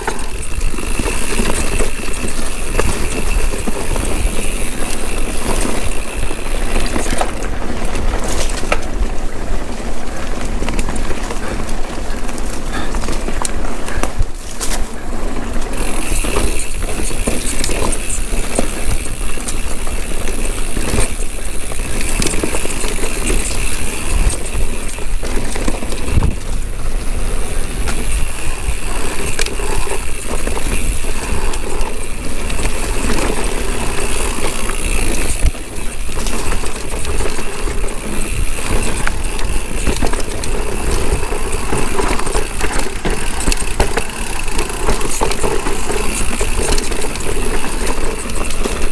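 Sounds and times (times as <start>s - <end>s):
bike rattling over rocks: 0.0s - 48.9s
wind rumble on microphone: 15.8s - 48.9s.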